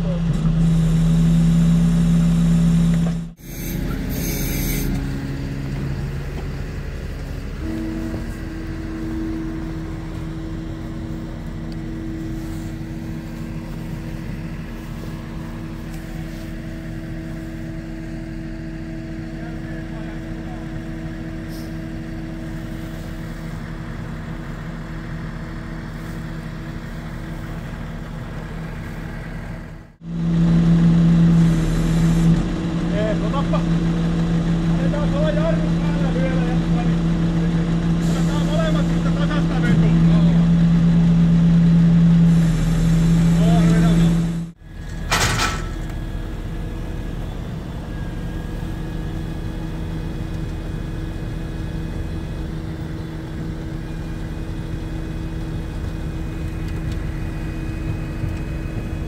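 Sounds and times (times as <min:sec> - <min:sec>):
truck engine running: 0:00.0 - 0:59.0.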